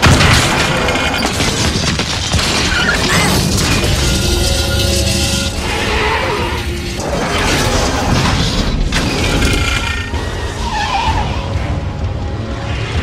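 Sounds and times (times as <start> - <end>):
metallic crashes and scraping: 0.1 - 10.9.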